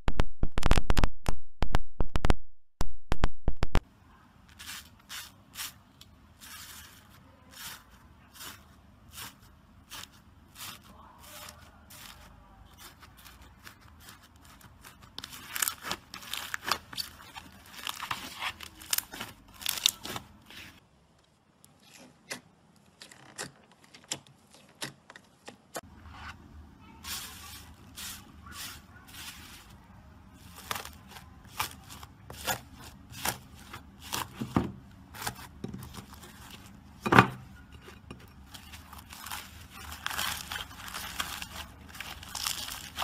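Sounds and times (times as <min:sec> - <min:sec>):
slime crackling and popping: 0:12.8 - 0:20.2, 0:30.4 - 0:34.4, 0:38.5 - 0:43.0.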